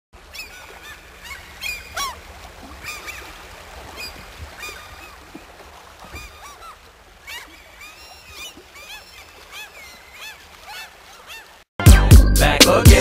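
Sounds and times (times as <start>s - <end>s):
waterbirds calling: 0.2s - 11.7s.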